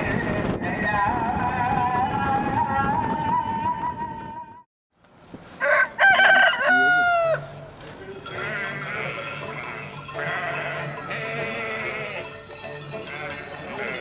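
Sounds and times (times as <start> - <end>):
rooster crowing: 5.6 - 7.6
sheep bleating: 8.2 - 14.0.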